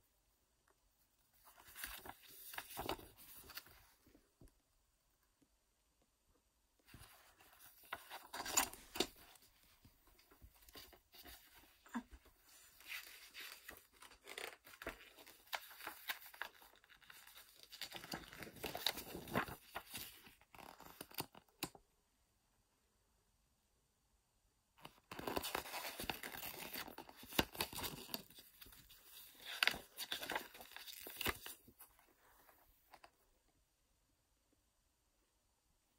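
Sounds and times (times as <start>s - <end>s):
paper pages rustling and turning: 1.4s - 4.2s, 6.8s - 21.8s, 24.8s - 33.1s.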